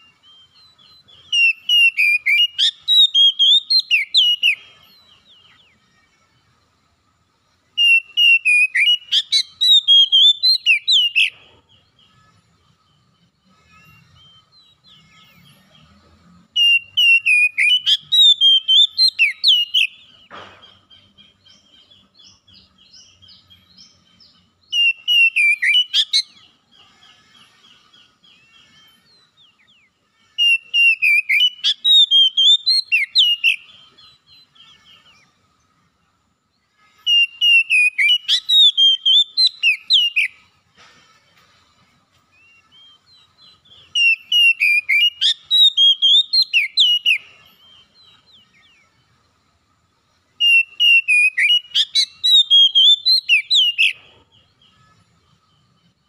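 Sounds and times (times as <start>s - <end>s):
bird singing warbling whistles: 0.0s - 5.7s, 7.8s - 11.4s, 16.6s - 20.1s, 24.6s - 26.5s, 30.4s - 35.2s, 37.0s - 40.4s, 42.4s - 48.8s, 50.4s - 54.0s
bird twittering: 16.6s - 35.4s, 37.0s - 40.5s, 42.4s - 49.0s, 50.4s - 55.7s.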